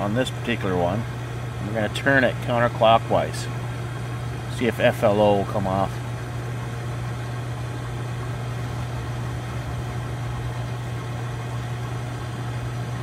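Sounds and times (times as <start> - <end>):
pump motor humming: 0.0 - 13.0.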